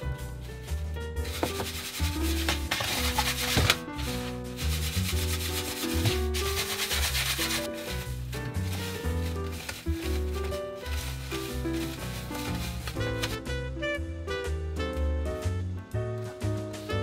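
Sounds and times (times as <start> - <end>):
background music: 0.0 - 17.0
bread crumbs rustling in metal tray: 0.6 - 13.4.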